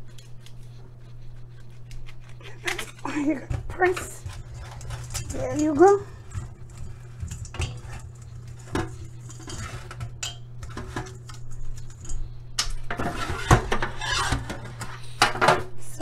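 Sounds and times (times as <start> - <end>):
steel colander clattering in sink: 3.1 - 12.2.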